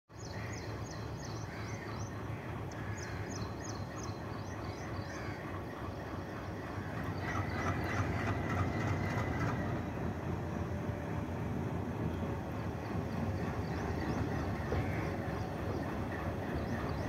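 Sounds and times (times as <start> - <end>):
wheels rumbling on rails: 0.2 - 17.0
locomotive engine rumbling: 0.3 - 17.0.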